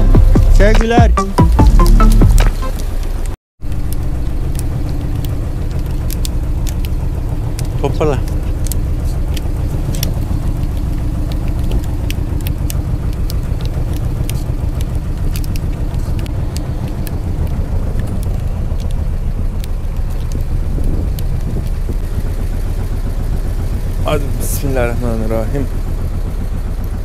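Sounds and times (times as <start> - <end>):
boat engine rumbling: 0.0 - 27.0
sharp ticks: 0.6 - 27.0.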